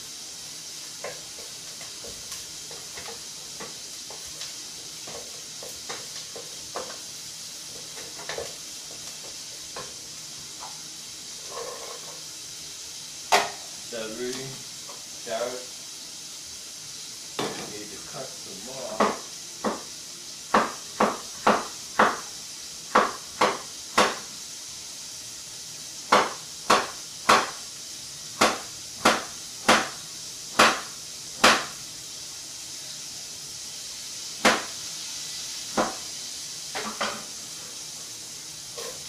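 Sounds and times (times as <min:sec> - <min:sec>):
knife chopping on wooden board: 0:19.0 - 0:19.9, 0:20.5 - 0:22.3, 0:22.9 - 0:24.3, 0:26.1 - 0:27.6, 0:28.4 - 0:30.0, 0:30.6 - 0:31.8, 0:34.4 - 0:34.7, 0:35.7 - 0:36.0.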